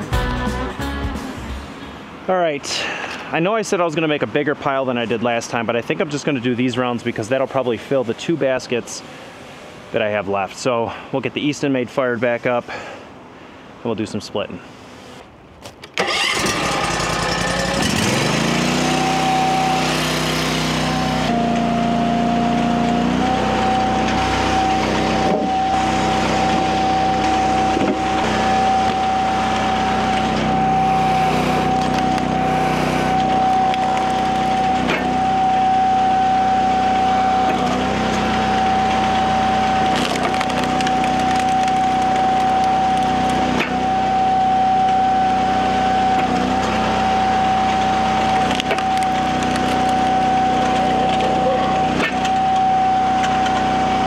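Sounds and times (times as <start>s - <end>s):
log splitter engine whining: 15.9s - 54.0s
wood cracking and splintering: 33.2s - 35.0s, 39.7s - 43.8s, 48.2s - 51.3s.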